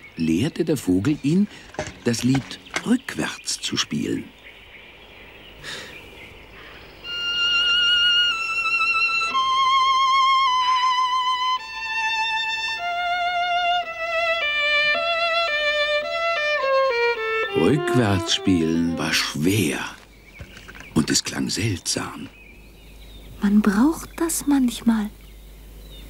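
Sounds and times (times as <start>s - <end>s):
solo violin melody: 7.0s - 19.4s.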